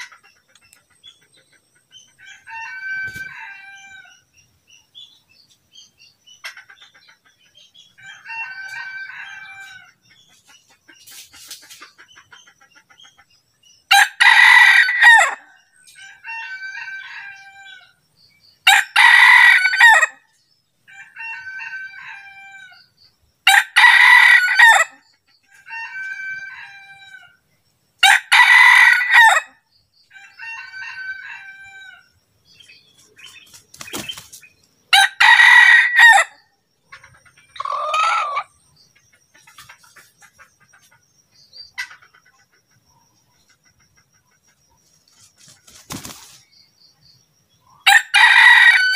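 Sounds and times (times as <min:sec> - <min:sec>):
faint rooster crows: 0:02.2 - 0:04.2, 0:08.0 - 0:10.0, 0:13.9 - 0:18.0, 0:20.9 - 0:22.9, 0:25.6 - 0:27.4, 0:28.0 - 0:32.2, 0:47.8 - 0:48.9
rooster crowing loudly: 0:02.2 - 0:04.2, 0:08.0 - 0:09.9, 0:13.9 - 0:15.4, 0:16.0 - 0:17.9, 0:18.7 - 0:20.2, 0:20.9 - 0:22.8, 0:23.4 - 0:25.0, 0:25.6 - 0:27.4, 0:28.0 - 0:29.5, 0:30.1 - 0:32.1, 0:34.9 - 0:36.4, 0:47.8 - 0:48.9.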